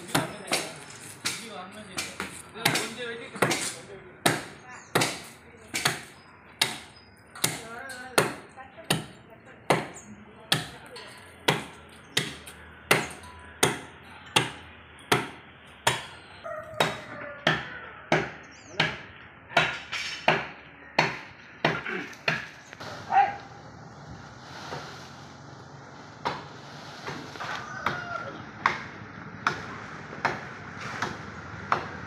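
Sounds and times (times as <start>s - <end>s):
blade chopping tree trunk: 0.0s - 10.8s, 28.6s - 32.0s.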